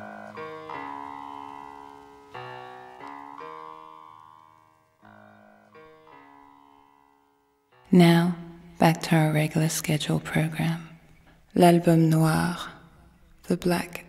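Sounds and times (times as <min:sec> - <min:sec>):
soft piano chords: 0:00.0 - 0:11.5.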